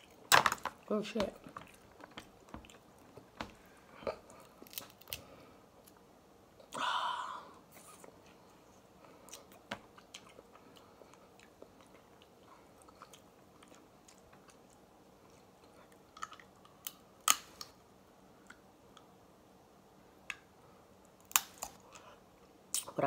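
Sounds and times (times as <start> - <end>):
quiet chewing: 1.4 - 6.0, 7.7 - 17.0
crab shells cracking: 4.6 - 5.2, 16.2 - 17.7, 21.2 - 21.8.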